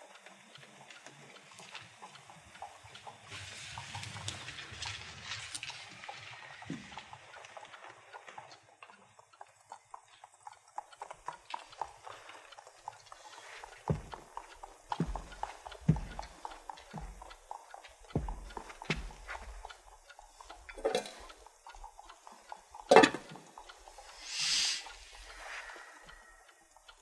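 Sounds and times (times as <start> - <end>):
clip-clop of horse hooves: 0.0 - 27.0
soft hiss: 24.0 - 26.1.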